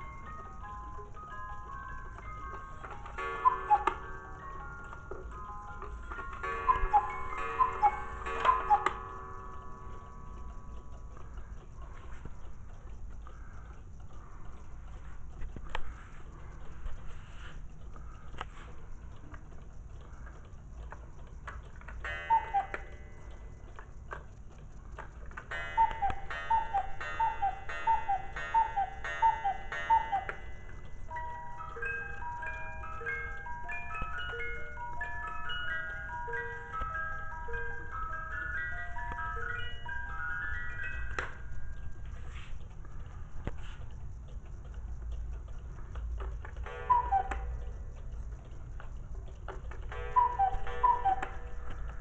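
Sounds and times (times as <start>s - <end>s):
sustained ringing tones: 0.0s - 11.8s, 22.0s - 23.9s, 25.5s - 42.5s, 46.6s - 48.6s, 49.9s - 52.0s
clock ticking: 0.0s - 52.0s
cuckoo clock calling: 0.0s - 52.0s.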